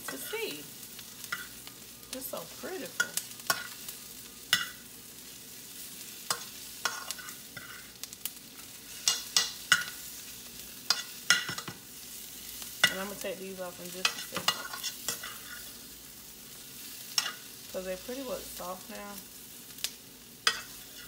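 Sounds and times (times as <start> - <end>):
vegetables sizzling in a skillet: 0.0 - 21.0
metal spoon scraping a pan: 1.2 - 1.7, 2.3 - 3.9, 4.5 - 4.9, 6.1 - 8.0, 8.6 - 10.2, 10.8 - 11.8, 12.6 - 13.3, 14.0 - 16.0, 17.0 - 17.5, 20.4 - 21.0.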